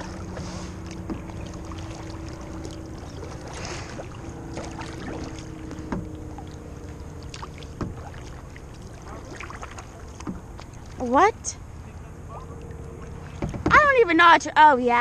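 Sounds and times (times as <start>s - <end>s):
paddle splashing in water: 0.0s - 11.2s, 12.3s - 13.9s
water dripping: 0.8s - 11.2s
sharp knocks: 5.7s - 6.2s, 13.3s - 13.9s.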